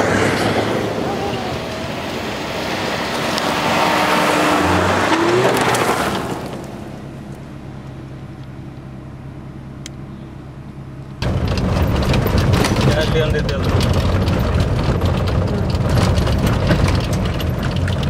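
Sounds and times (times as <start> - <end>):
loud rushing: 0.0 - 7.0
off-road engine noise: 0.0 - 18.0.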